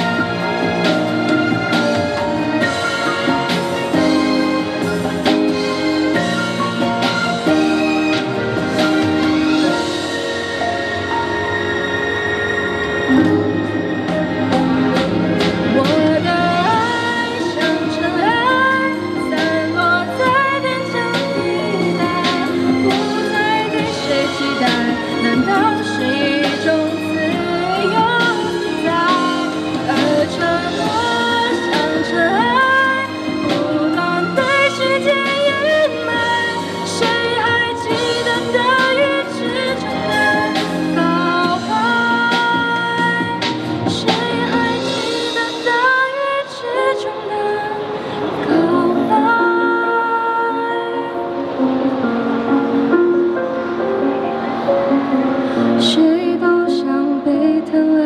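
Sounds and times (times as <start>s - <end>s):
instrumental accompaniment: 0.0s - 58.0s
woman singing into a microphone: 15.4s - 52.0s, 55.2s - 58.0s.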